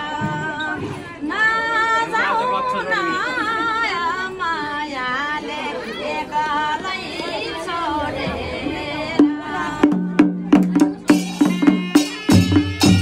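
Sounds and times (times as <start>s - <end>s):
voices singing and talking: 0.0s - 13.0s
drums beaten with sticks: 9.2s - 13.0s.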